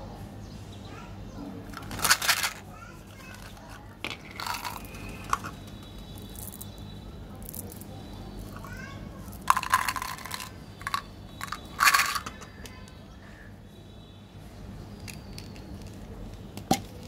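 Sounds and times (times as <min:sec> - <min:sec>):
candies clattering into bottle: 0:01.7 - 0:06.8, 0:07.4 - 0:12.8, 0:15.0 - 0:17.0
candies rattling in plastic bottle: 0:01.7 - 0:06.8, 0:07.4 - 0:12.6, 0:15.0 - 0:16.1.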